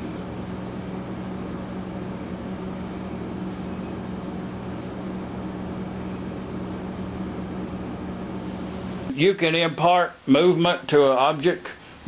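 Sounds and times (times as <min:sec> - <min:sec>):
low machine hum: 0:00.0 - 0:09.2.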